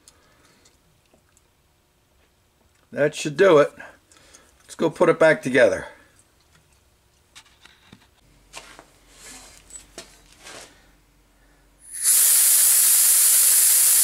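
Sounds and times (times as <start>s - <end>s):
steady hiss of air: 11.8s - 14.0s.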